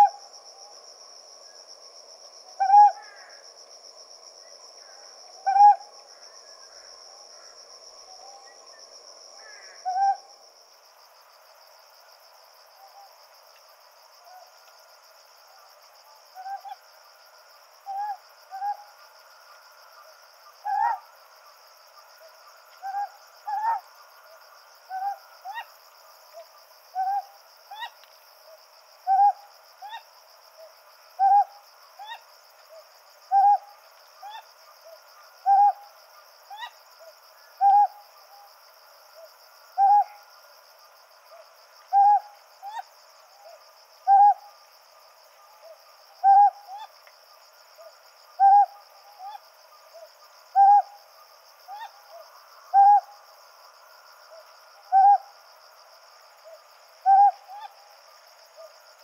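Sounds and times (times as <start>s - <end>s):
high insect trill: 0.0s - 59.0s
owl calls: 2.6s - 3.4s, 4.8s - 5.8s, 9.4s - 10.3s, 17.9s - 18.8s, 20.6s - 21.0s, 22.8s - 23.9s, 24.9s - 25.7s, 27.0s - 28.0s, 29.1s - 30.0s, 31.2s - 32.2s, 33.3s - 34.5s, 35.4s - 35.8s, 36.5s - 36.8s, 37.6s - 38.0s, 39.8s - 40.2s, 41.9s - 42.8s, 44.1s - 44.4s, 45.6s - 46.9s, 47.8s - 49.4s, 50.0s - 51.0s, 51.7s - 53.0s, 54.9s - 55.3s, 57.0s - 57.8s.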